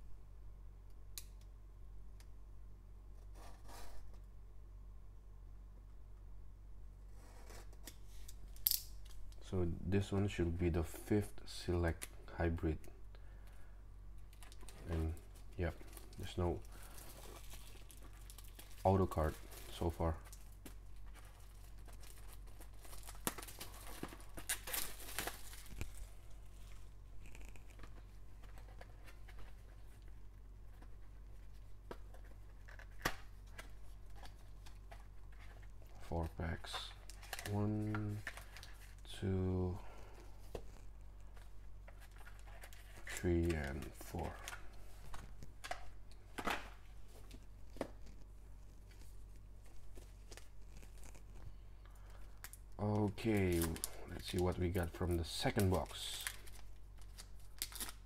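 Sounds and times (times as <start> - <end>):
plastic wrap tearing and crinkling: 14.3 - 30.2, 40.6 - 58.0.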